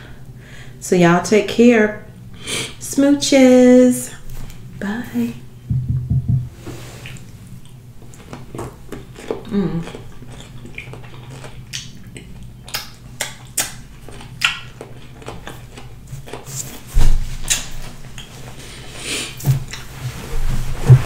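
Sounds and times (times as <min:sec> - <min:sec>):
steady low hum: 0:00.0 - 0:21.0
thump on table: 0:05.7 - 0:06.6
chewing and dish clicks: 0:07.1 - 0:16.4.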